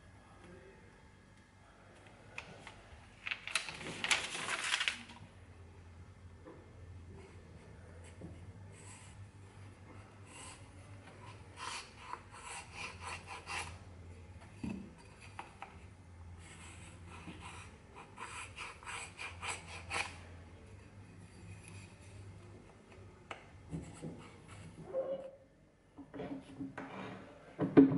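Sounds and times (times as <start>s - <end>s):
marking gauge scratching wood: 11.2s - 13.8s, 16.7s - 20.3s.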